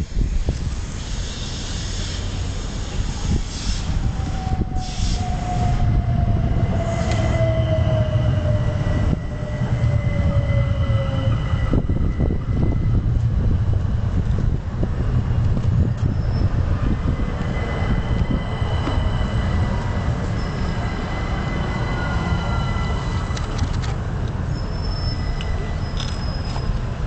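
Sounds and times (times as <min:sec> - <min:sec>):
train braking whine: 0:00.0 - 0:13.2, 0:16.0 - 0:23.7, 0:24.5 - 0:26.8
train wheels rumbling on rail: 0:00.0 - 0:27.0
high-pitched squeal: 0:01.0 - 0:13.1, 0:16.0 - 0:23.6.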